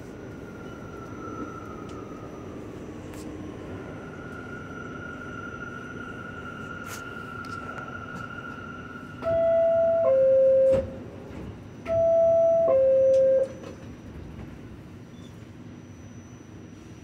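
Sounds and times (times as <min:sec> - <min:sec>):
subway car background hum: 0:00.0 - 0:17.0.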